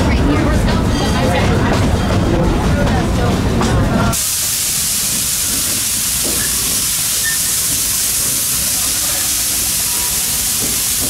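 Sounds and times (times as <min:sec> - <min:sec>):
coaches rumbling on track: 0:00.0 - 0:04.2
steam locomotive hissing: 0:01.8 - 0:11.0.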